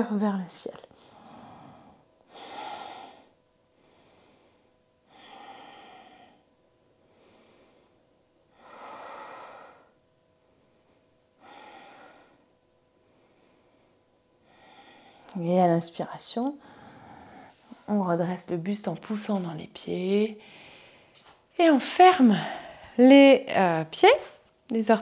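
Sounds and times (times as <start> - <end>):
woman breathing slowly: 0.9 - 15.4, 16.6 - 17.9, 20.4 - 21.4, 22.3 - 23.0.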